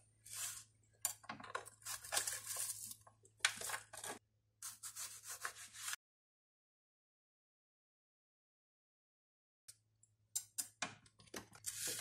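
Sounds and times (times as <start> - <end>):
knife scraping cutting board: 0.2 - 0.7.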